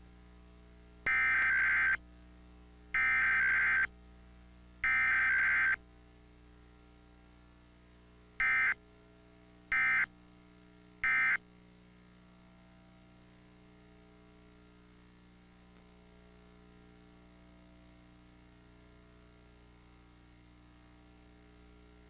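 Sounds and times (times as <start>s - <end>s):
raspy digital data tones: 3.0s - 3.9s, 4.9s - 5.8s.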